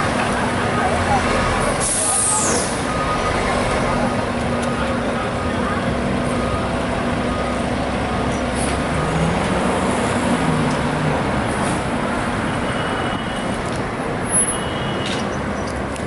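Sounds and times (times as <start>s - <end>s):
city street traffic: 0.0s - 16.0s
heavy vehicle engines idling: 0.0s - 16.0s.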